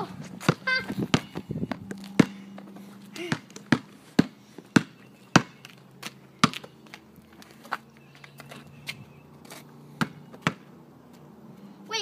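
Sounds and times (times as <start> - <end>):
basketball bouncing on concrete: 0.2 - 7.0, 10.0 - 10.7.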